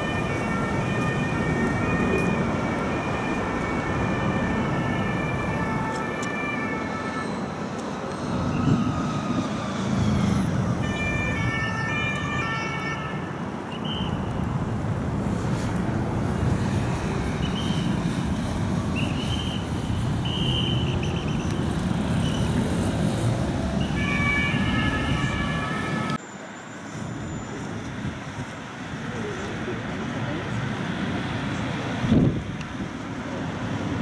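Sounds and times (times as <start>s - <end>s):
two-tone police siren: 0.0s - 7.6s, 8.3s - 14.1s, 23.7s - 26.2s
traffic and engine rumble: 0.0s - 34.0s.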